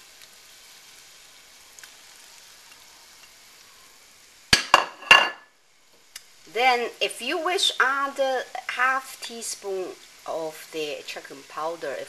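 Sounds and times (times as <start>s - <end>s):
liquid boiling with hiss: 0.0s - 12.0s
plate clinking against wok: 4.6s - 5.4s.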